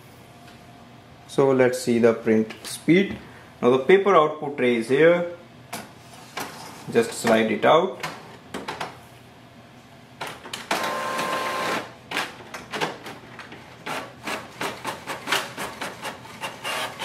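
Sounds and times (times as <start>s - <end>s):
printer whirring: 10.7s - 12.0s, 13.8s - 17.0s.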